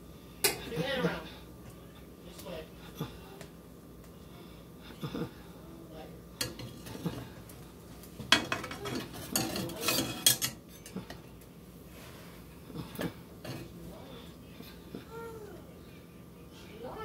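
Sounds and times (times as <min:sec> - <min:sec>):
metal spatula scraping a pan: 0:08.6 - 0:10.6.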